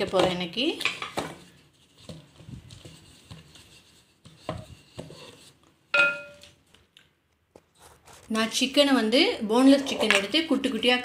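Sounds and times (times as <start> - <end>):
ringing clink: 6.0 - 6.4.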